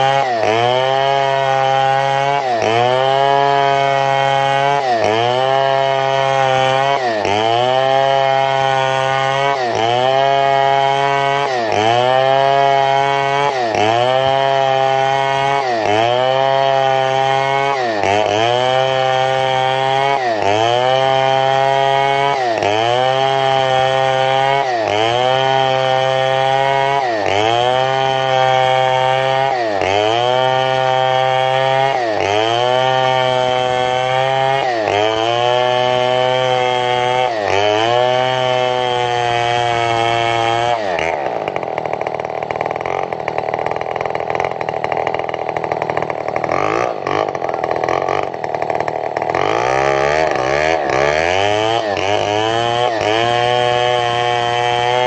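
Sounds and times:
chainsaw cutting log: 0.0 - 55.0.

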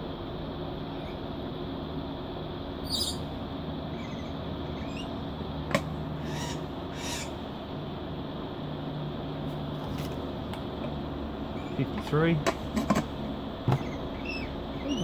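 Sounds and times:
induction cooker humming: 0.0 - 15.0
faint bird chirps: 0.8 - 1.3, 2.8 - 3.3, 3.9 - 5.2, 13.8 - 15.0.

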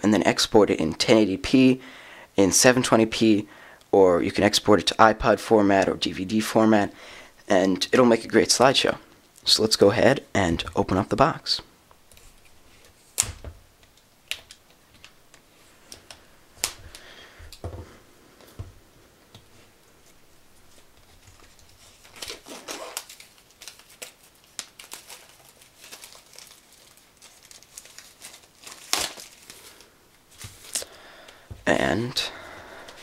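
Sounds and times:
plastic shrink-wrap crinkling and tearing: 20.7 - 31.0.

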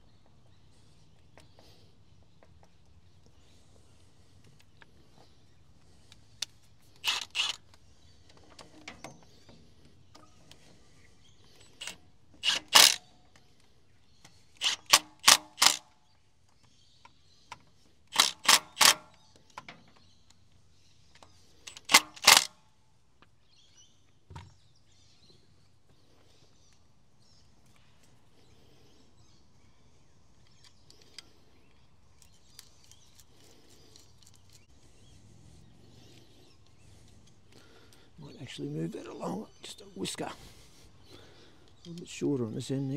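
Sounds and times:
impact wrench bursts: 7.0 - 7.6, 11.8 - 13.0, 14.6 - 15.8, 18.1 - 19.2, 21.7 - 22.5.

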